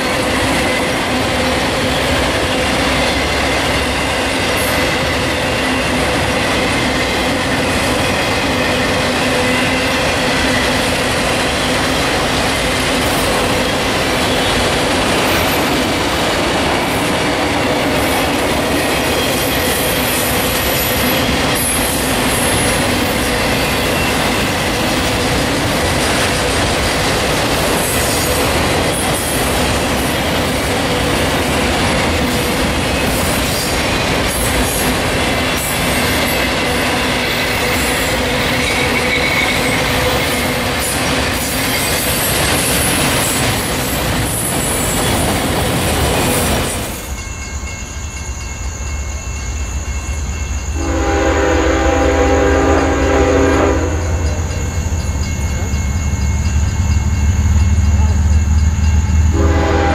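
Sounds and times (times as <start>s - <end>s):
train wheels rumbling on rail: 0.0s - 59.9s
locomotive air horn: 50.8s - 54.2s, 59.3s - 59.9s.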